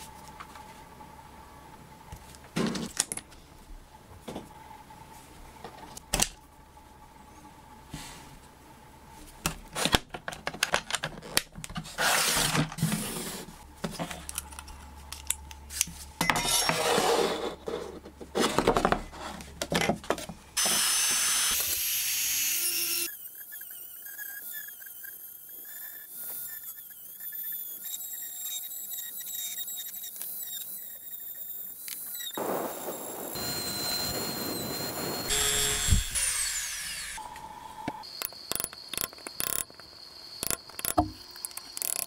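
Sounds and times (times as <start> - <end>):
rotary tool whining: 20.6 - 42.0
loud steady hiss: 32.4 - 36.7.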